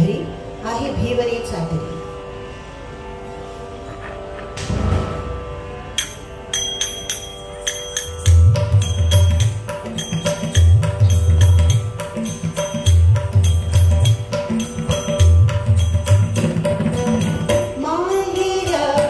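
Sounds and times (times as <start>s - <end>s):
small metallic strikes: 4.4s - 19.0s
deep drum strokes: 4.6s - 5.8s.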